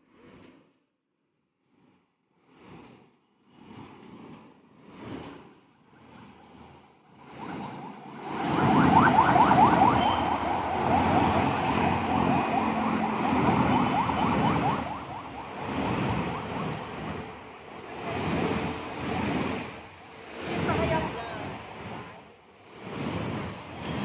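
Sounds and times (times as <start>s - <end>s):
traffic rumbling past: 5.7s - 24.0s
fast warbling siren tone: 7.1s - 18.7s.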